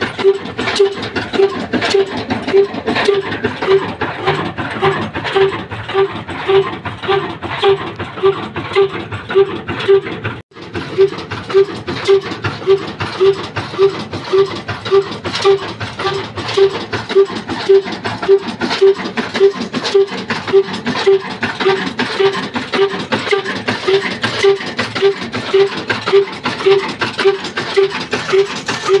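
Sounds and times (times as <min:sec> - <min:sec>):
diesel engine running: 0:00.0 - 0:29.0
mechanical clicks and clatter: 0:00.0 - 0:29.0.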